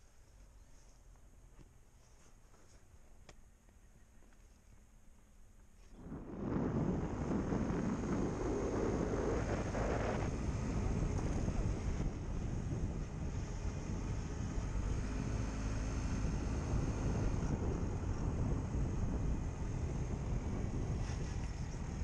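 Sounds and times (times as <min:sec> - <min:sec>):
engine and road rumble: 0:00.0 - 0:22.0
faint high whine: 0:00.0 - 0:22.0
wind buffeting microphone: 0:05.9 - 0:22.0.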